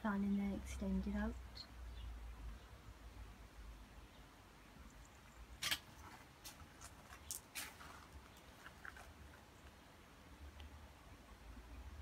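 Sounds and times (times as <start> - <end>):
footsteps on paved path: 6.0 - 9.5.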